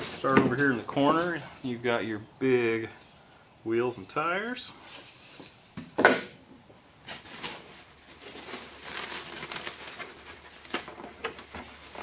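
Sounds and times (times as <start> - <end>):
plastic bag crinkling: 7.1 - 12.0.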